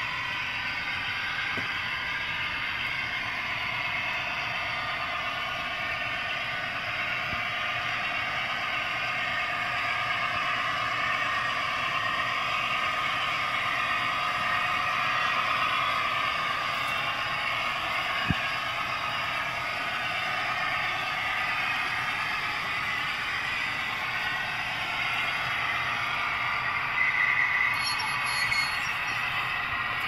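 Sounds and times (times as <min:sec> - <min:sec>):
model train wheels on track: 0:00.0 - 0:30.0
tinny diesel railcar sound: 0:00.0 - 0:30.0.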